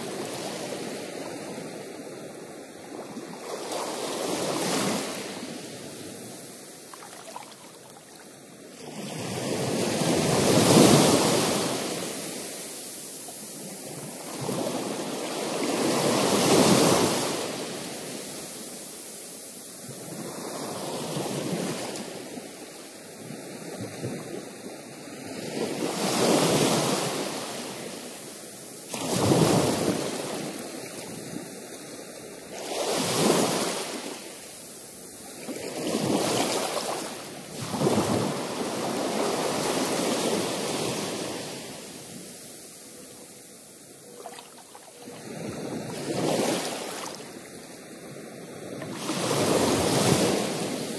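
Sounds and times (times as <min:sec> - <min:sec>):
ocean surf washing against rocks: 0:45.0 - 0:50.9.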